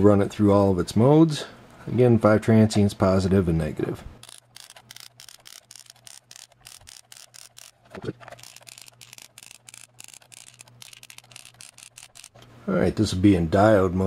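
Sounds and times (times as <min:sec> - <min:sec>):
multimeter clicks and scraping: 0:04.2 - 0:12.5.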